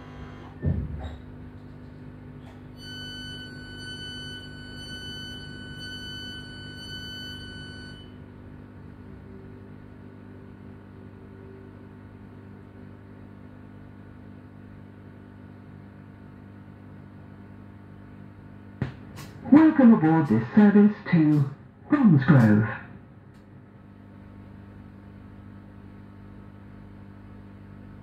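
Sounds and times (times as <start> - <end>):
electronic door-warning tone: 0.0 - 0.7, 2.8 - 8.2
train equipment low hum: 0.0 - 28.0.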